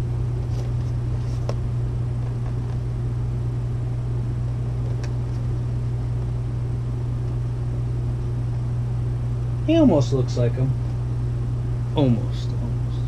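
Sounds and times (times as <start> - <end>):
low machine hum: 0.0 - 13.0
cardboard boxes being handled: 0.4 - 1.6.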